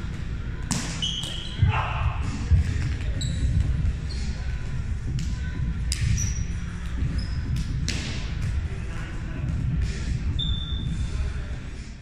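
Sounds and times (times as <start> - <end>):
ball slaps: 0.6 - 1.8, 5.2 - 6.2, 7.5 - 8.6
sneakers squeaking on gym floor: 0.7 - 4.6, 5.9 - 8.3, 10.2 - 11.1.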